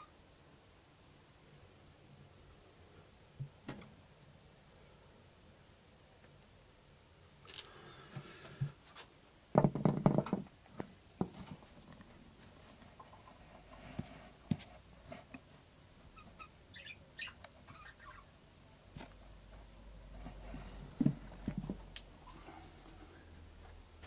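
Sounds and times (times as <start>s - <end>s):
knocking and rustling: 9.5s - 15.5s, 20.2s - 21.9s
budgies chirping: 16.2s - 18.3s.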